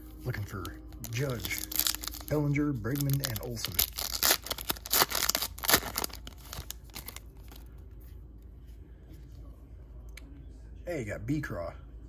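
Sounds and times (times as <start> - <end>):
foil wrapper ripping and crinkling: 0.5 - 7.7.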